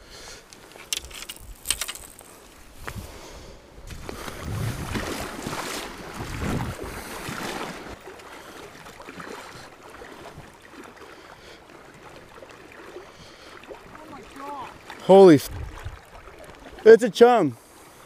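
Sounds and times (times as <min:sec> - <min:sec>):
river water flowing: 0:00.0 - 0:18.0
wind gusting on microphone: 0:02.7 - 0:07.4, 0:15.4 - 0:16.2.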